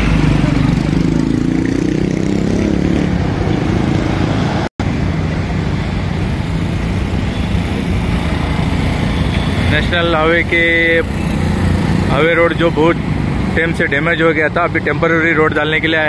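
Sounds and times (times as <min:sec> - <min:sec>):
diesel engine droning: 0:04.8 - 0:16.0.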